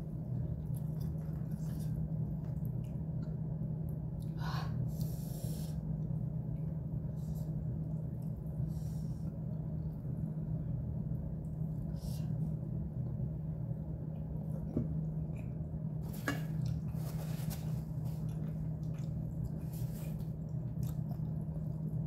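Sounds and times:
steady low hum: 0.0 - 22.0
person breathing: 4.4 - 5.9, 8.6 - 9.4, 11.9 - 12.5.

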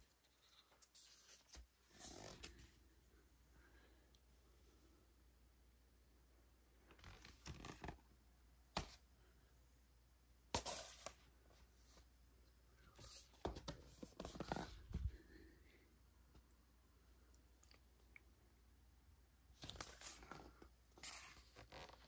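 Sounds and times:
record sleeves scraping and rustling: 14.0 - 15.1, 21.0 - 22.0.

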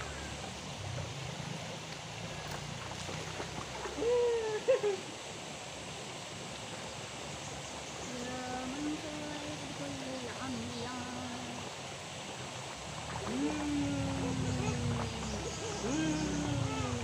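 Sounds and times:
river water burbling: 0.0 - 17.0
lower voice: 13.1 - 17.0.

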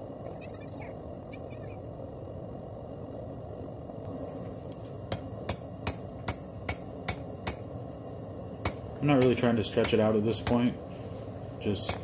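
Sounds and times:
hammer striking hot metal on anvil: 5.1 - 7.6, 8.6 - 10.7.

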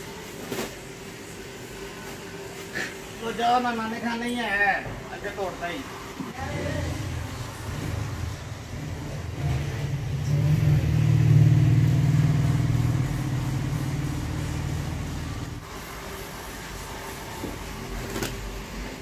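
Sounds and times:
vehicle engine humming: 6.4 - 15.7.

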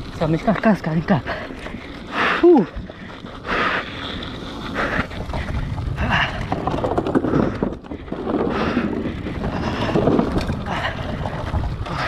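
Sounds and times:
bike rattles and clicks: 0.0 - 12.0
wind buffeting microphone: 0.0 - 12.0.

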